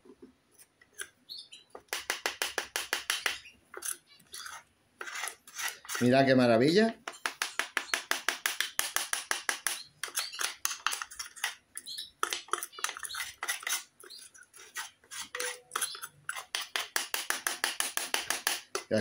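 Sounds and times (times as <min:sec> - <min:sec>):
metal spoon scraping metal bowl: 0:03.2 - 0:06.2, 0:09.6 - 0:18.9.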